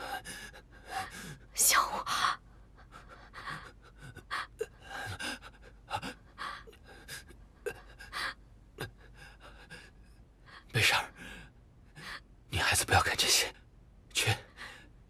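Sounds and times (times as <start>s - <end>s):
heavy panting breaths and gasps: 2.7s - 11.4s.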